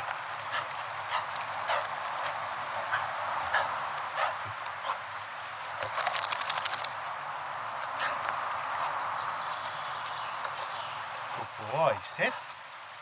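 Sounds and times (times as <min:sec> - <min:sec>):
footsteps on dirt path: 0:00.0 - 0:06.0.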